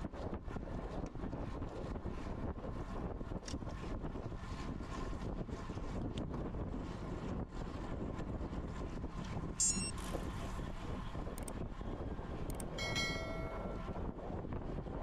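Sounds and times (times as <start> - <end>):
wind rumbling on microphone: 0.0 - 15.0
ringing tone: 9.6 - 10.0, 12.8 - 14.0.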